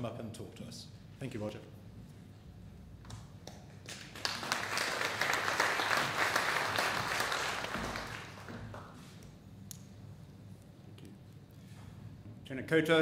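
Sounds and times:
audience applauding: 3.9 - 9.1.

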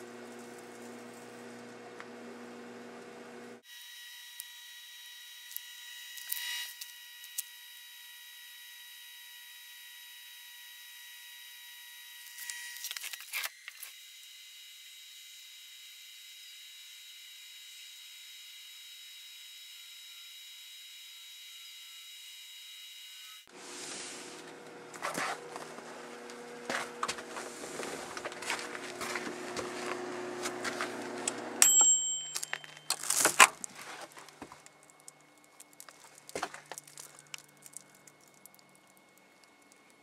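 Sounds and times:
microwave oven humming: 0.0 - 5.4, 24.3 - 32.8
steady high whine: 23.5 - 40.0
microwave timer ring: 31.3 - 33.0
phone crackling and popping: 32.3 - 40.0.

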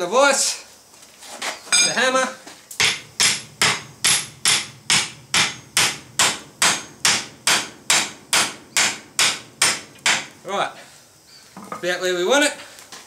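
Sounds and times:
hammer striking hot steel: 2.8 - 10.4.

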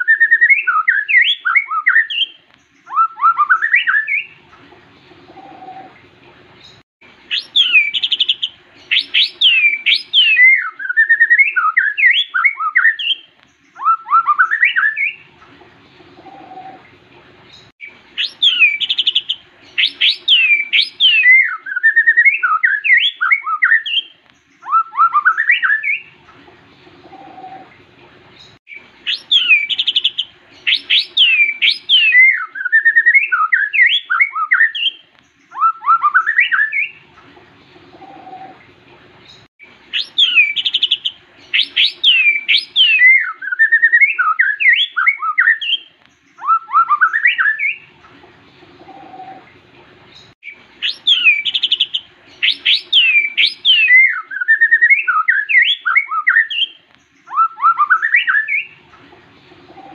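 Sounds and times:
bird singing whistled notes: 0.0 - 4.4, 6.6 - 15.3, 17.6 - 26.2, 28.4 - 37.0, 39.9 - 47.9, 50.4 - 58.8.

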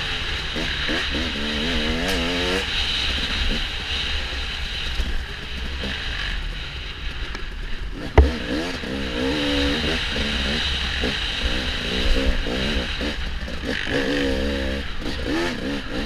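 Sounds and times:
sharp knock: 8.2 - 8.6.

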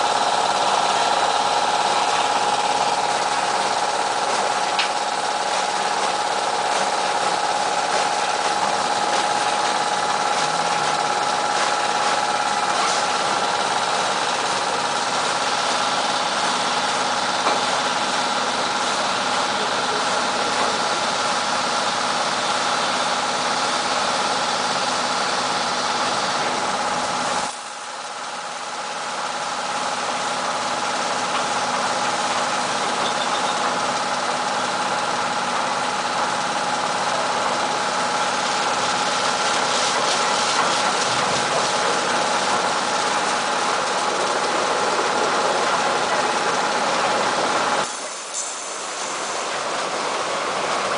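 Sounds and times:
car wash machine hum and whine: 0.0 - 50.9
water spray hiss: 37.4 - 45.9, 47.8 - 50.9.

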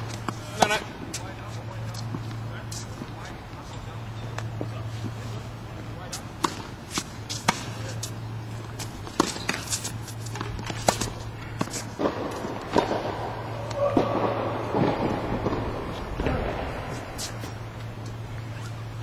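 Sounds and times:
scuffling footsteps on court: 0.0 - 13.0
racquet hitting tennis ball: 6.4 - 8.1, 8.7 - 17.6.

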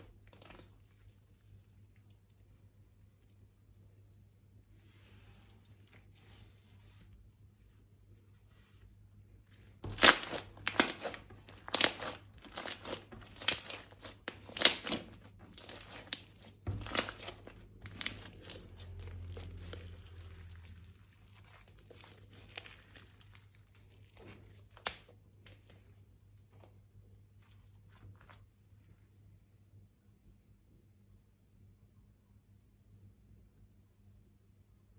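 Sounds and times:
slime crinkling and crackling: 0.0 - 28.6
faint handling sounds: 0.0 - 29.2.

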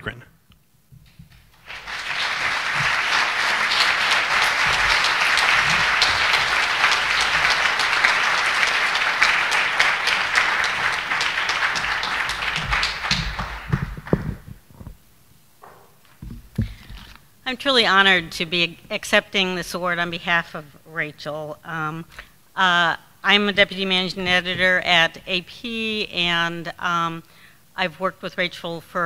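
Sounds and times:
audience applauding: 1.4 - 14.9.

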